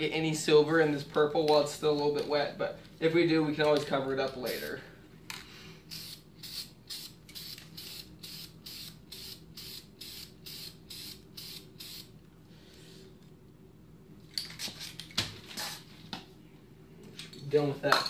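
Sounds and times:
spray paint can hissing in spurts: 5.9s - 12.1s.

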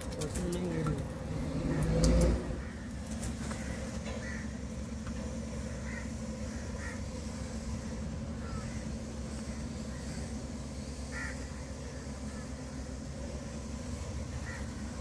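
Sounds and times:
engine humming: 0.0s - 15.0s
faint bird calls: 1.6s - 15.0s.

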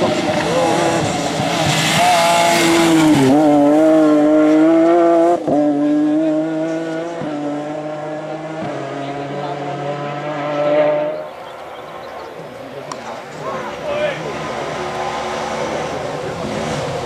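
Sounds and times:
rally car engine running hard: 0.0s - 11.4s.

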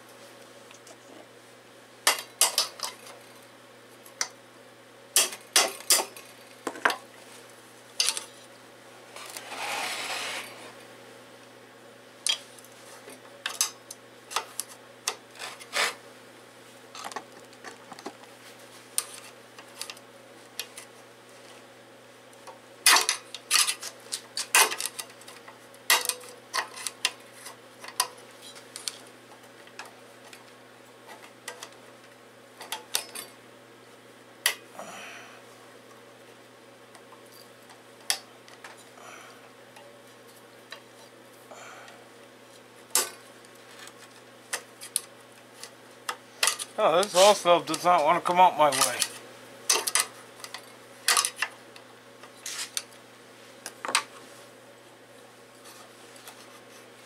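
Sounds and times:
rough metal scrape: 9.2s - 10.8s, 15.4s - 16.0s.

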